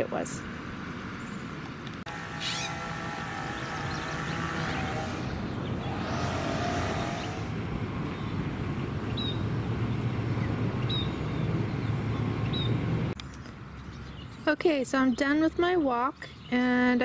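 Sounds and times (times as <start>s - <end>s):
distant traffic rumble: 0.0s - 16.4s
small bird chirping: 2.3s - 6.3s.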